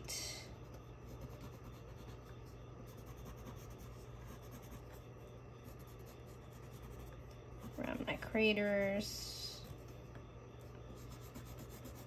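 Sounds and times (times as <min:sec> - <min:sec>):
low steady hum: 0:00.0 - 0:12.0
pencil scratching on paper: 0:01.0 - 0:05.0, 0:05.6 - 0:08.1, 0:10.9 - 0:12.0.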